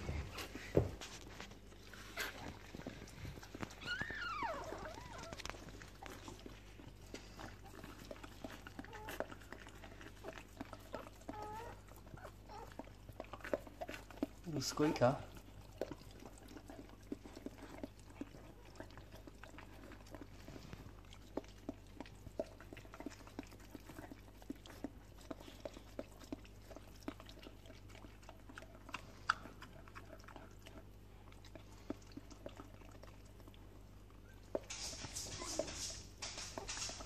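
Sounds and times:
wet licking smacks: 0:01.5 - 0:37.0
rustling: 0:34.2 - 0:37.0.

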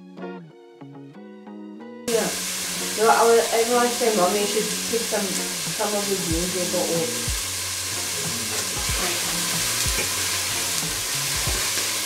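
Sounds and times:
food sizzling in pot: 0:02.1 - 0:12.0.

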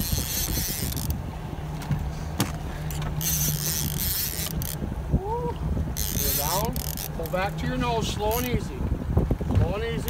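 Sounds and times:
fishing reel rattling: 0:00.0 - 0:01.2, 0:02.8 - 0:04.8, 0:06.0 - 0:07.5, 0:08.2 - 0:08.7
boat motor humming: 0:00.0 - 0:10.0.

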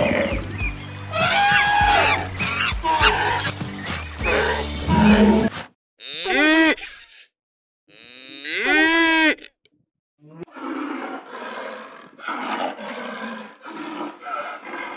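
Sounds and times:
tiger growling: 0:04.2 - 0:05.6, 0:10.4 - 0:14.9
cow mooing: 0:04.3 - 0:06.8, 0:07.9 - 0:09.4.

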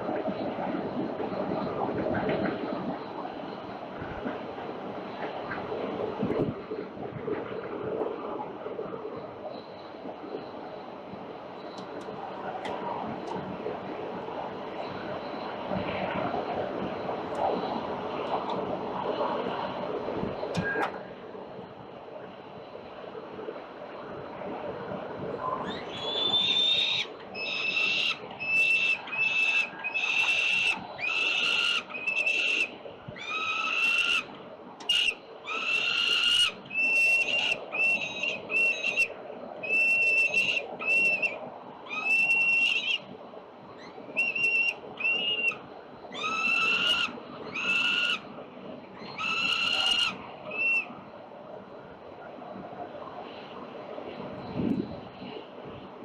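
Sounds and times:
young falcons whining calls: 0:25.6 - 0:43.0, 0:43.8 - 0:48.2, 0:49.0 - 0:50.8.

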